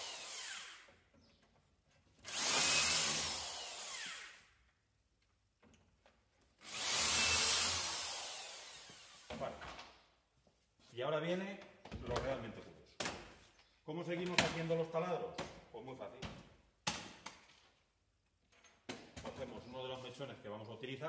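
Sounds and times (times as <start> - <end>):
electric drill boring holes: 0.0 - 1.0, 2.2 - 4.5, 6.6 - 9.4.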